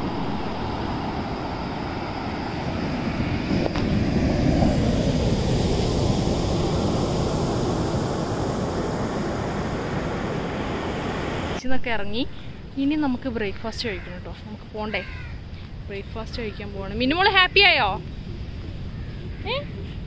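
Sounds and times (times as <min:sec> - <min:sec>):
ocean surf breaking: 0:00.0 - 0:11.6
wind on microphone: 0:00.0 - 0:11.6, 0:14.6 - 0:20.0.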